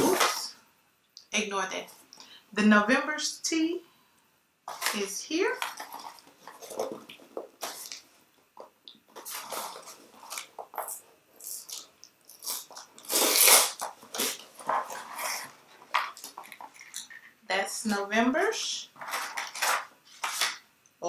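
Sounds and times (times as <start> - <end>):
cardboard box rustling and crackling: 5.6 - 8.0.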